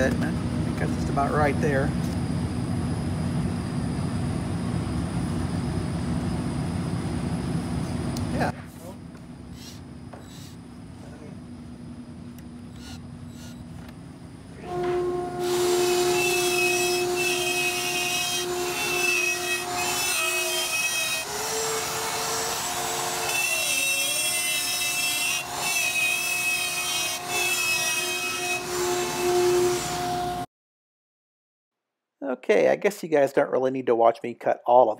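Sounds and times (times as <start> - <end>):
router motor whine: 12.6 - 14.0, 14.6 - 30.4
router bit cutting wood: 12.8 - 13.6, 15.4 - 30.1.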